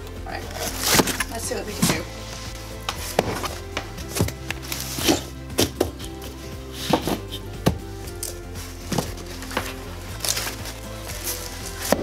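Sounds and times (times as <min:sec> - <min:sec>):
soft background music: 0:00.0 - 0:12.0
cardboard boxes knocking on floor: 0:08.9 - 0:09.8.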